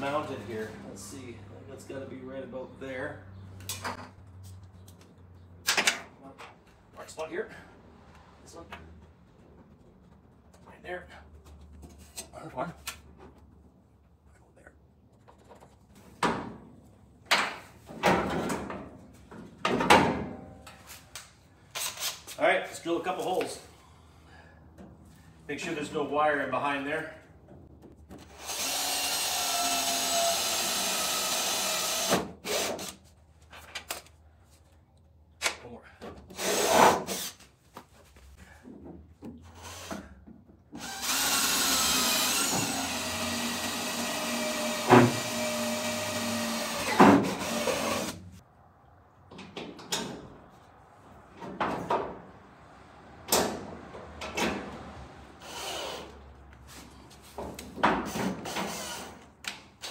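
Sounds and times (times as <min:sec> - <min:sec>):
cordless drill whining: 0:40.8 - 0:48.2.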